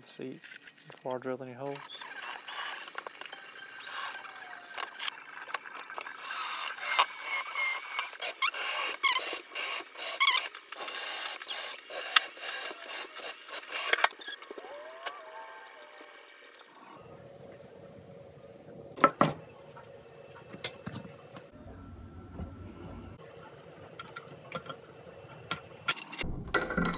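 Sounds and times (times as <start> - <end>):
cordless drill boring into wood: 1.8 - 3.0, 3.8 - 5.1, 5.9 - 16.6.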